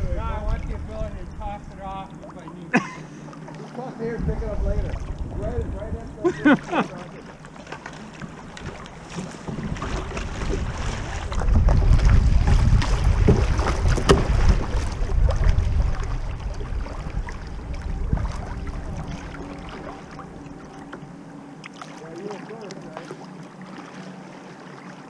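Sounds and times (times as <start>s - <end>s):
wind buffeting microphone: 0.0s - 2.9s, 4.0s - 7.3s, 8.1s - 21.4s
water rushing around kayak hull: 0.0s - 25.0s
sharp water splashes: 6.5s - 20.9s.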